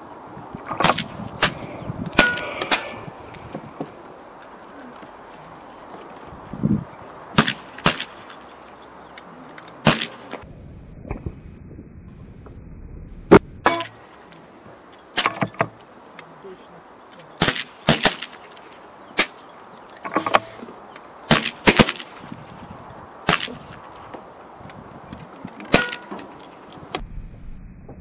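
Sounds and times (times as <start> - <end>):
air rifle shots: 0.7 - 3.1, 7.3 - 8.3, 9.8 - 10.4, 17.4 - 18.6, 19.2 - 19.4, 21.3 - 22.3, 23.2 - 23.8, 25.7 - 26.2.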